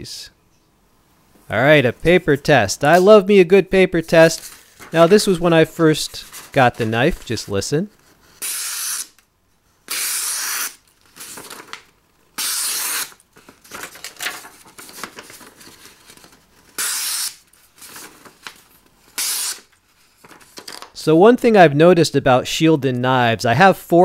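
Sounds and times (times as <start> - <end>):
paper rustling: 4.2 - 8.4, 10.9 - 12.0, 12.6 - 16.8, 17.4 - 21.0
knife slicing paper: 8.4 - 9.2, 9.9 - 11.8, 12.4 - 16.1, 16.8 - 18.6, 19.2 - 19.7.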